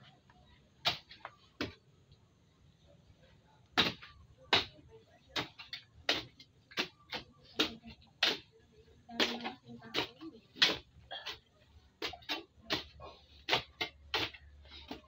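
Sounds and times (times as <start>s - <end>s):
garden tool chopping soil: 3.8s - 4.8s, 5.4s - 8.5s, 9.2s - 15.0s.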